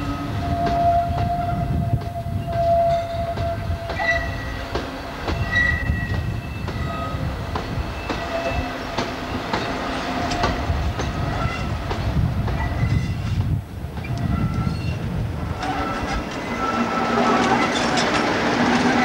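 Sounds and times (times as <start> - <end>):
diesel locomotive drone: 0.0 - 19.0
high wheel squeal: 5.3 - 7.3, 7.9 - 8.8, 14.1 - 19.0
wagons clicking over rail joints: 15.5 - 19.0.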